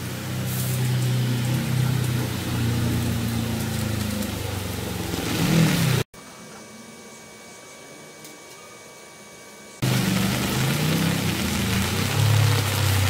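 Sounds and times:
rain falling with a hiss: 0.0 - 6.0, 9.8 - 13.0
truck engine humming: 0.0 - 6.0, 9.8 - 13.0.

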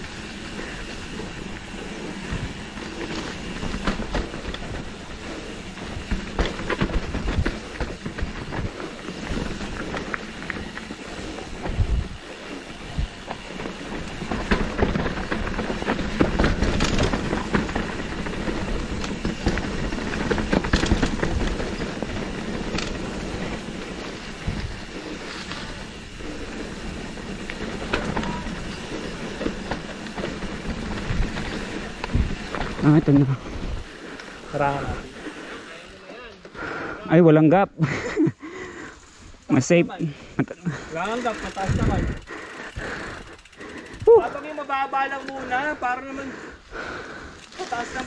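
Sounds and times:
tyres crunching over stones: 0.0 - 35.5
bike rattling: 0.0 - 48.0.

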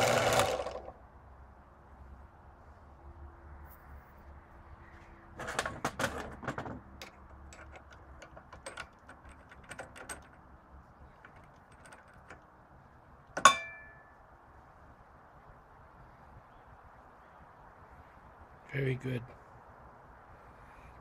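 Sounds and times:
metal scraping rattle: 5.4 - 10.4
sharp ringing metal clink: 13.4 - 14.2.

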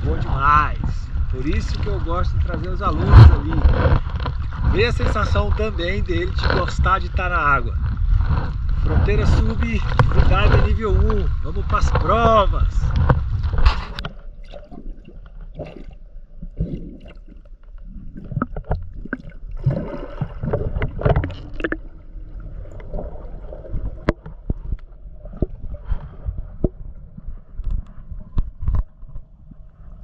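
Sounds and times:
muffled low rumble: 0.0 - 16.9
water gurgling and bubbling: 0.0 - 30.0.

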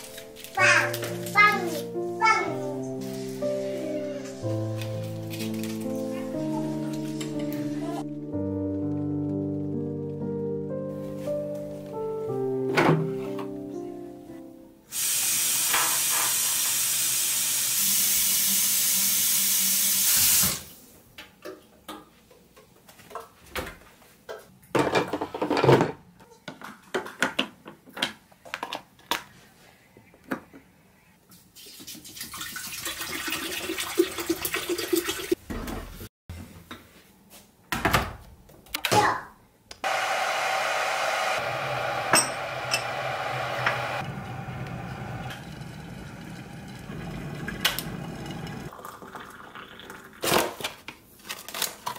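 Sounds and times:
tap water running: 14.9 - 20.7, 31.6 - 35.4, 41.2 - 50.2.

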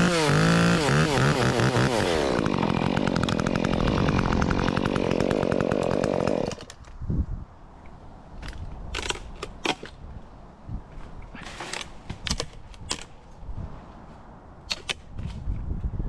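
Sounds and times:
branches clicking and snapping: 8.4 - 10.0
leaves rustling: 10.8 - 14.4.

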